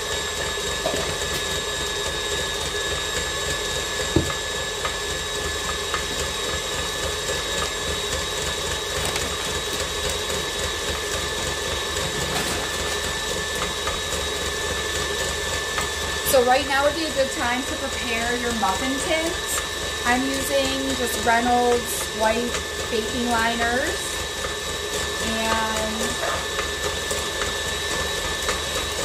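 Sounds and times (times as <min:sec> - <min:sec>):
stand mixer whining: 0:00.0 - 0:29.0.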